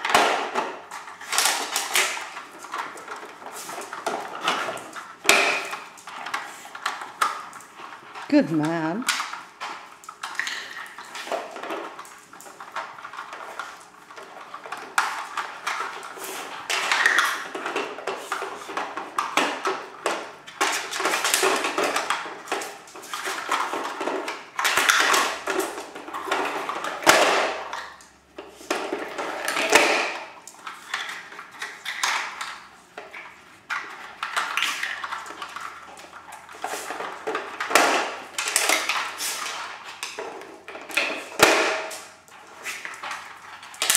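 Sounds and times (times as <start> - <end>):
plastic toy pieces clacking: 42.9 - 43.9.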